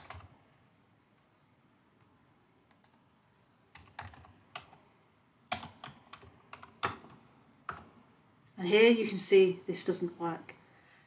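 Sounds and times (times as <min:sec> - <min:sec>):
computer keyboard keystrokes: 0:00.0 - 0:00.3, 0:02.7 - 0:03.0, 0:03.7 - 0:04.8, 0:05.5 - 0:07.9.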